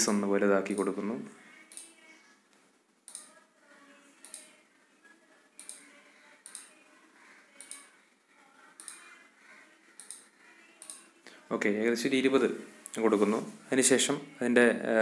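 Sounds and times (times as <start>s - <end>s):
low room noise: 0.0s - 15.0s
mouse and keyboard clicks: 1.7s - 1.9s, 3.1s - 3.4s, 4.2s - 4.5s, 5.6s - 6.7s, 7.6s - 7.9s, 10.0s - 11.0s.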